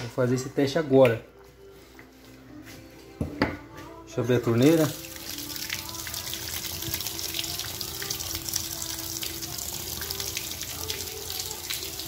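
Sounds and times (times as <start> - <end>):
tap water splashing into sink: 4.8 - 12.0.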